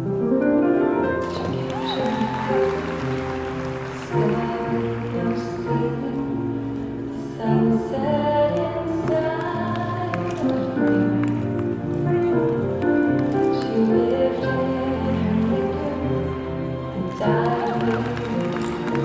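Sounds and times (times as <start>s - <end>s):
person singing: 3.8s - 11.2s, 13.4s - 19.0s.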